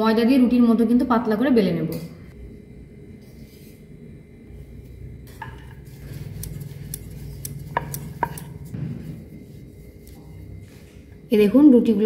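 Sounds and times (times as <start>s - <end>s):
rolling pin rolling dough: 4.8s - 11.0s.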